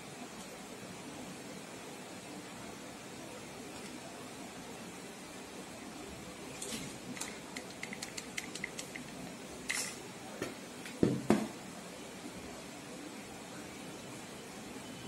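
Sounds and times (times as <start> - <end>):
knocks on table: 10.4 - 11.5.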